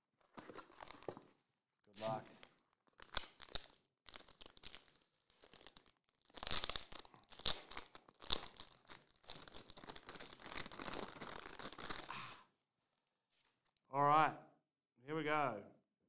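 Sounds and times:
foil wrapper tearing and crinkling: 0:02.0 - 0:12.2.

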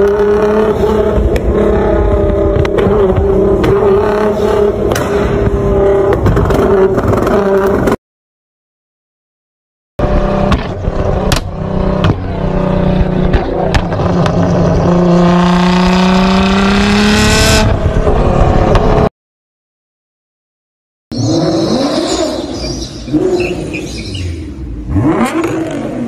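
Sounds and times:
car engine through loud exhaust: 0:00.0 - 0:08.0, 0:10.0 - 0:19.1, 0:21.1 - 0:26.0
engine revving up: 0:10.0 - 0:19.1, 0:21.2 - 0:26.0
exhaust pops and cracks: 0:13.0 - 0:14.6.

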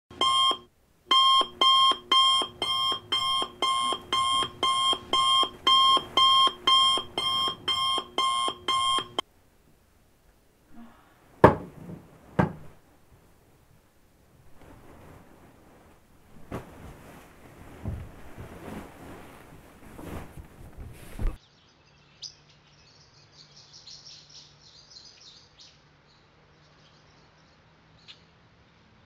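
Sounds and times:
electronic alarm beeping: 0:00.1 - 0:09.2.

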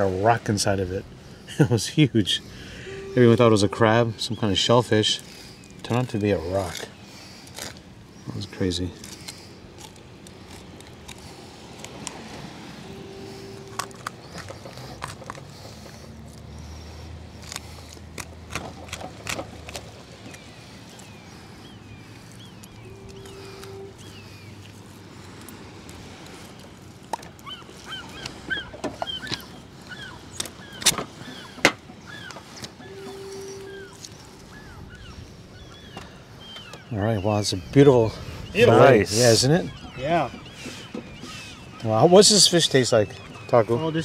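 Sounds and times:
birds chirping: 0:00.0 - 0:44.0
short low tone: 0:02.8 - 0:04.0.

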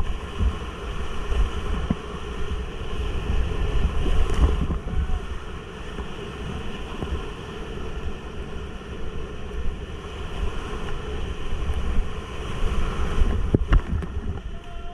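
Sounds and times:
whitewater rushing and splashing: 0:00.0 - 0:14.9
wind buffeting on microphone: 0:00.0 - 0:14.9.

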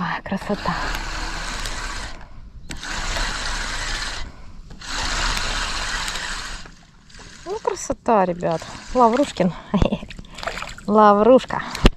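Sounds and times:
fishing reel whirring: 0:00.3 - 0:09.7.

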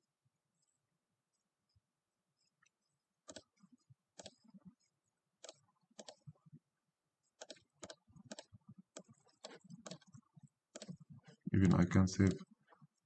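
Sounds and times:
mouse and keyboard clicks: 0:03.2 - 0:03.6, 0:04.2 - 0:04.6, 0:05.4 - 0:06.4, 0:07.4 - 0:11.4.

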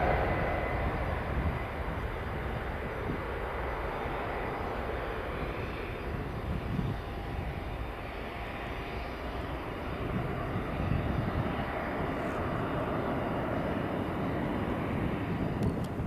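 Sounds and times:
jet engines rumbling at takeoff: 0:00.0 - 0:16.0.

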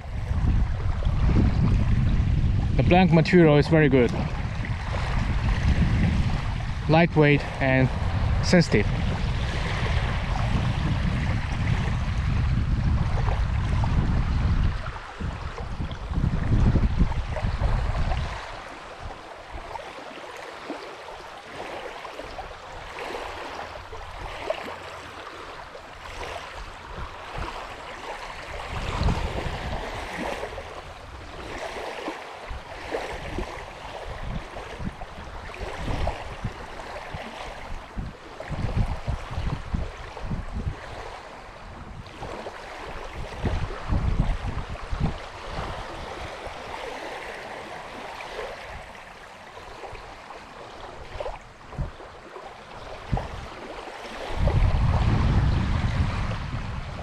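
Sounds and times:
wind gusting against microphone: 0:00.0 - 0:20.8, 0:21.5 - 0:57.0
small waves lapping on gravel: 0:14.7 - 0:43.6, 0:44.8 - 0:54.6.

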